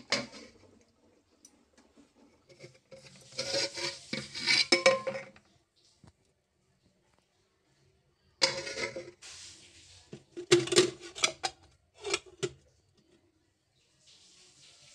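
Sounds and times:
pot lids clanking: 0.0s - 0.7s, 2.5s - 5.4s, 8.4s - 9.2s, 10.4s - 12.6s
metal scraping on metal: 0.0s - 0.8s, 1.9s - 5.4s, 8.4s - 12.5s.

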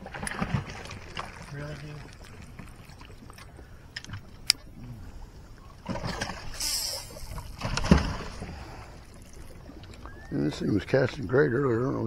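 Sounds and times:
splash in water: 5.8s - 8.5s.

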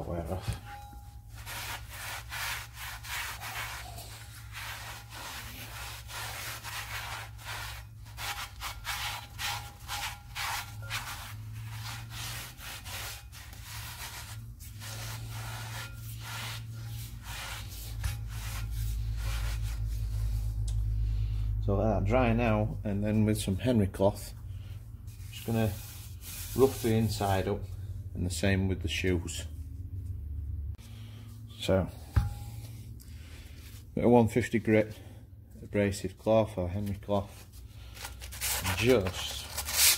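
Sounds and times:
cloth rag rubbing inside drum: 0.0s - 20.6s, 25.1s - 27.6s, 37.2s - 39.9s.

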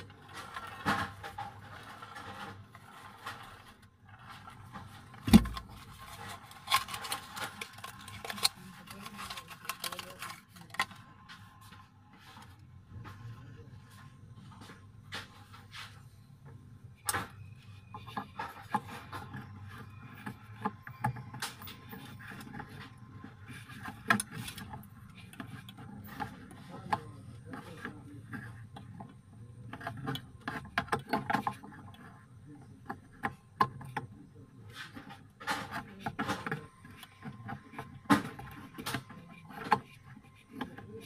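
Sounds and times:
hands handling glass and plastic: 0.0s - 11.4s.

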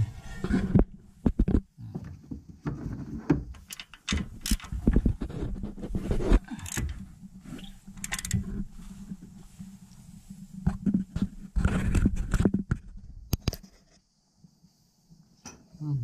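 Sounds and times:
metallic clicks and clunks of socket bar: 3.6s - 4.7s, 8.0s - 8.4s.

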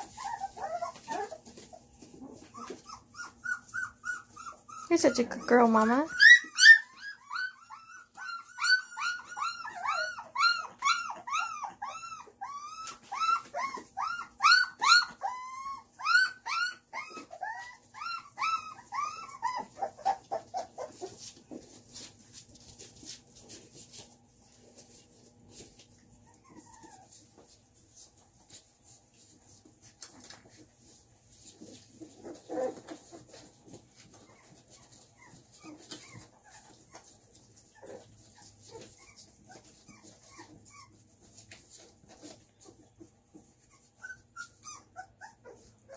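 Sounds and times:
puppies whimpering: 0.0s - 22.2s, 26.0s - 28.2s, 29.5s - 45.9s.

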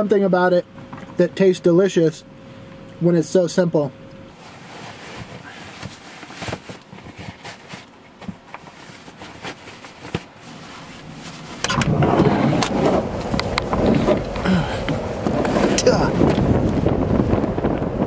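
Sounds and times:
wind buffeting microphone: 11.0s - 18.0s.

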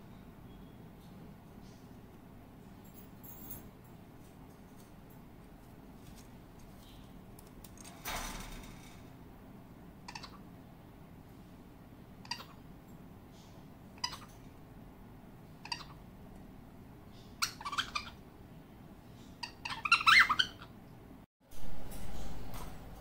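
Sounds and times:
cockatiels chirping and squawking: 10.1s - 10.4s, 12.2s - 12.6s, 14.0s - 14.4s, 15.6s - 16.0s, 17.4s - 18.2s, 19.4s - 20.7s.

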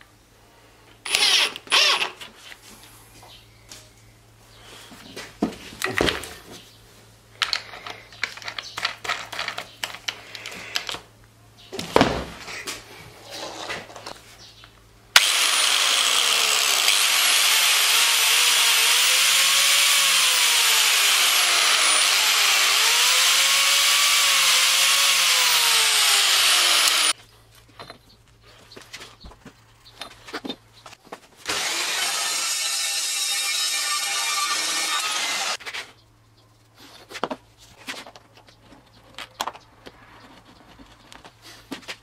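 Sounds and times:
angle grinder whining: 1.1s - 2.3s, 15.2s - 27.2s, 31.4s - 35.6s
metal parts clicking and knocking: 7.4s - 11.0s.

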